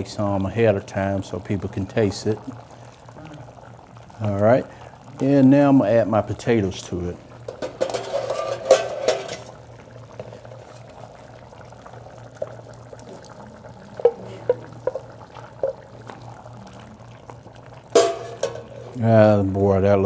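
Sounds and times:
low steady hum: 0:00.0 - 0:20.0
spoon knocking on pan: 0:14.0 - 0:15.9.

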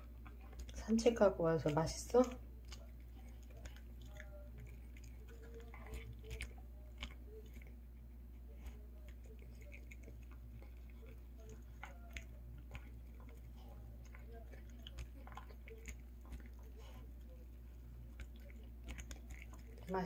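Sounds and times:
dog chewing and crunching: 0:00.0 - 0:20.0.

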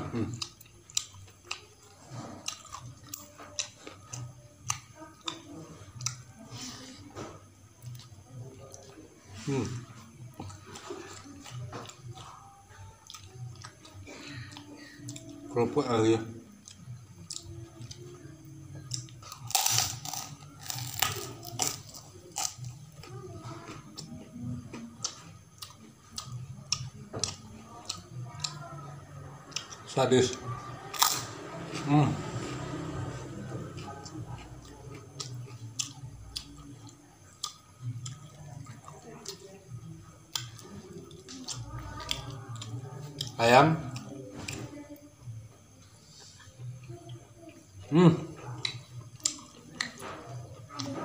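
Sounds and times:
close-up chewing: 0:00.2 - 0:06.6, 0:07.7 - 0:15.6, 0:16.5 - 0:29.9, 0:32.7 - 0:47.8, 0:48.4 - 0:51.0
crunching of a cracker being chewed: 0:18.8 - 0:23.1, 0:30.9 - 0:31.3.

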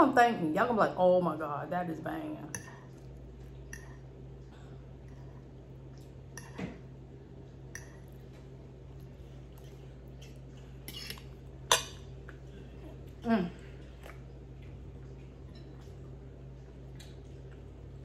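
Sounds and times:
steady low hum: 0:00.0 - 0:18.0
chewing: 0:07.5 - 0:18.0
fork clinking and scraping on plate: 0:10.2 - 0:12.1.

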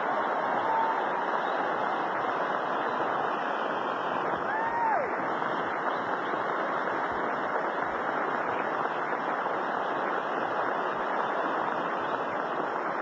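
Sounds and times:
audience applauding: 0:00.0 - 0:03.6.

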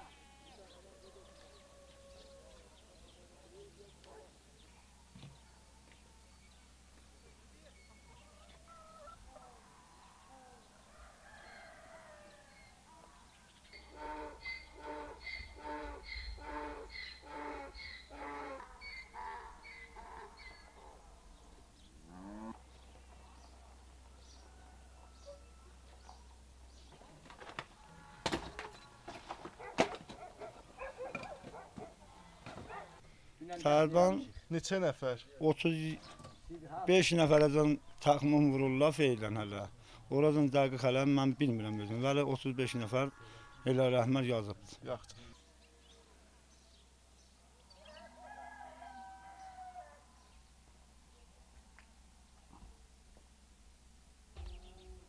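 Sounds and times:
faint rooster crowing: 0:00.0 - 0:03.2, 0:07.8 - 0:21.1, 0:22.4 - 0:26.8, 0:47.7 - 0:50.4
faint bird chirps: 0:00.0 - 0:18.2, 0:54.4 - 0:55.0.

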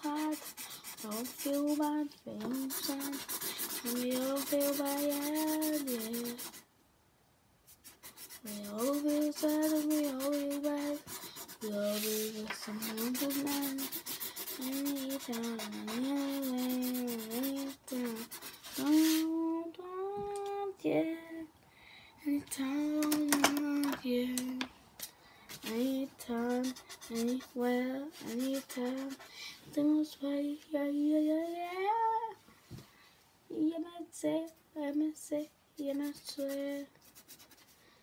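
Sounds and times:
marker scrubbing on paper: 0:00.0 - 0:06.6, 0:07.7 - 0:19.3, 0:26.4 - 0:29.3, 0:36.0 - 0:37.8.

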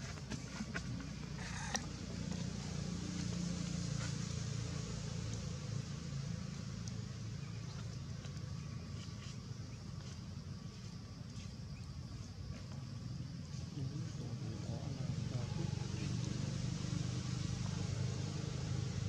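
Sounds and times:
distant motor vehicle engine rumble: 0:00.0 - 0:19.0.

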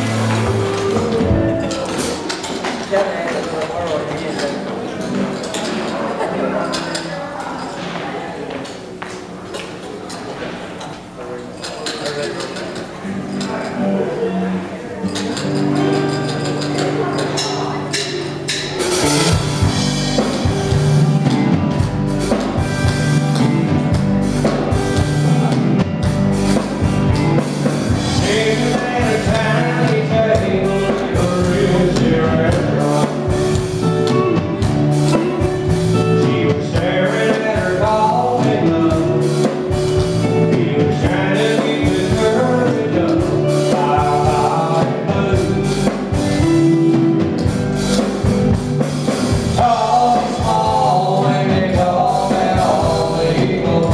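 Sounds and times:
country band playing: 0:00.0 - 0:09.2, 0:11.6 - 0:53.9.

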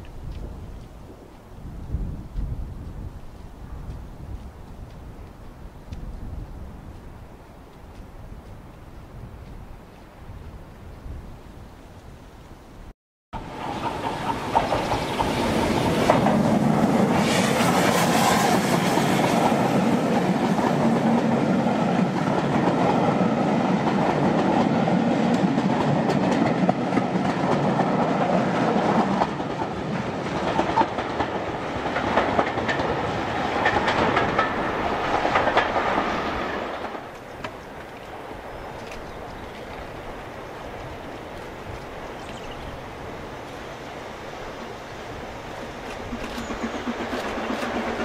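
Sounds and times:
train wheels clicking on rail joints: 0:00.0 - 0:06.3, 0:13.4 - 0:42.7, 0:45.2 - 0:48.0
steam train passing: 0:13.4 - 0:48.0.

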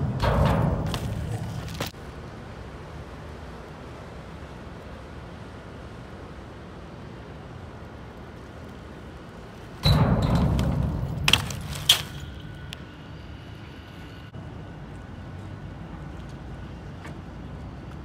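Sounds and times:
bike wheels knocking down: 0:00.0 - 0:02.0, 0:09.8 - 0:12.7
bike tyres rushing on concrete: 0:00.0 - 0:02.1
outdoor background noise: 0:00.0 - 0:18.0.

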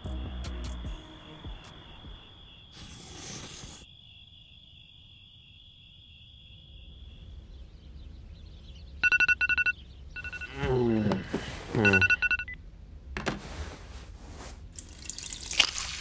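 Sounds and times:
crickets chirring: 0:00.1 - 0:11.0
sharp electronic beeps: 0:09.0 - 0:10.6, 0:11.8 - 0:12.6.

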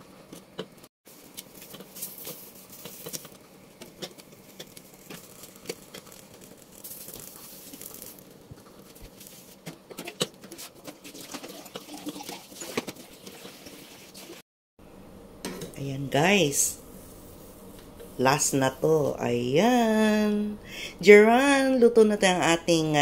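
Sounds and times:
eggplant skins crackling and popping: 0:00.3 - 0:13.0
gas burner flames hissing: 0:01.1 - 0:09.8, 0:16.1 - 0:19.4.

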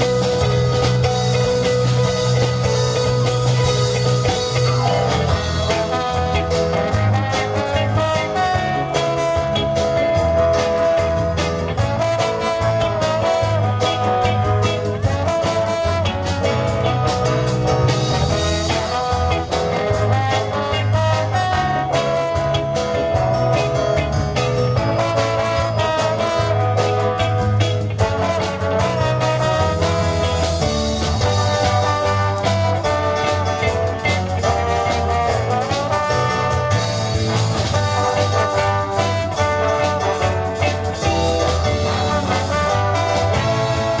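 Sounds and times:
horn section: 0:00.0 - 0:44.0
live band playing swing: 0:00.0 - 0:44.0.

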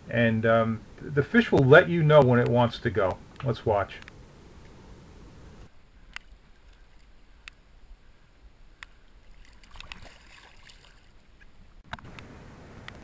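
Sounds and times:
water lapping: 0:08.1 - 0:11.8
fish splashing: 0:08.9 - 0:11.8.

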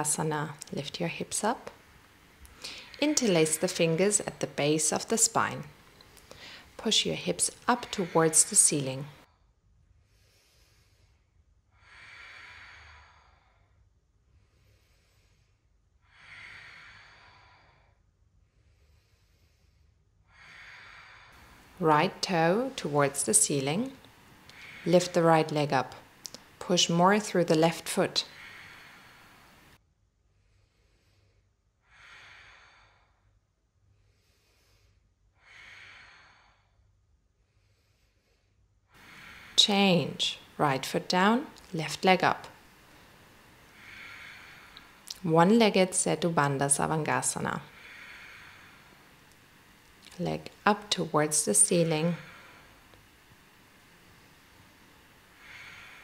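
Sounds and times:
person breathing slowly and deeply: 0:02.4 - 0:03.7, 0:06.0 - 0:06.8, 0:07.8 - 0:21.7, 0:28.2 - 0:39.6, 0:42.7 - 0:45.1, 0:47.7 - 0:49.8, 0:52.2 - 0:56.0.

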